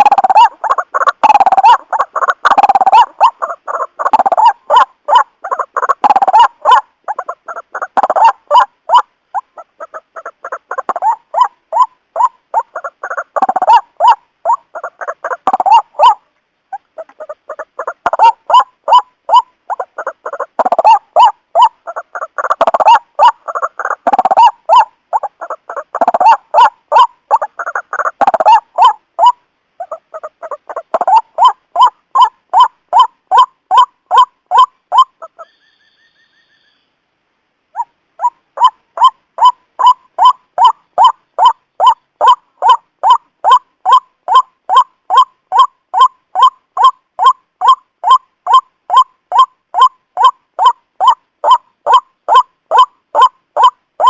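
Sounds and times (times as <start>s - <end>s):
bird call rapid repeated notes: 0.0s - 16.2s, 37.8s - 53.8s.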